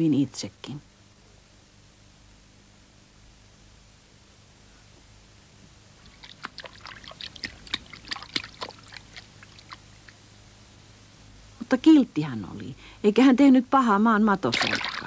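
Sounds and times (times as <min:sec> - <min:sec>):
water sloshing in buckets: 0:06.0 - 0:09.8, 0:14.5 - 0:15.0.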